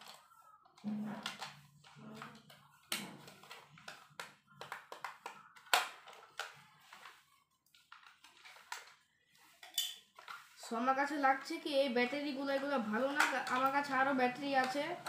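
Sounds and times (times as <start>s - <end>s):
plastic clicks and taps: 1.2s - 9.0s, 13.1s - 15.0s.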